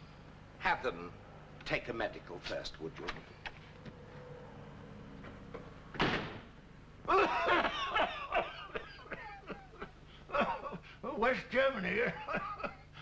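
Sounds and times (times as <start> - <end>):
door slamming: 5.9 - 6.5
man laughing: 7.1 - 11.0, 12.0 - 13.0.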